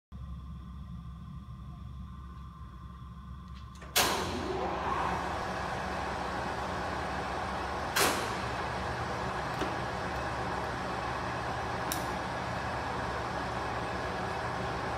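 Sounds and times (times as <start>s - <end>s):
lathe running: 4.1s - 14.9s.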